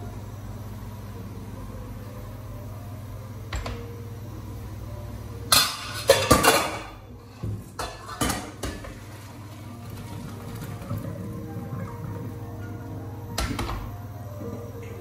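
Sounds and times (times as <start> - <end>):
metal pots clanking: 5.5 - 15.0.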